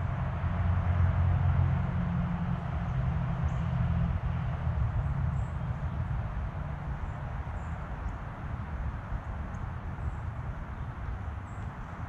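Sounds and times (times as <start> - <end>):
distant traffic hum: 0.0 - 12.0.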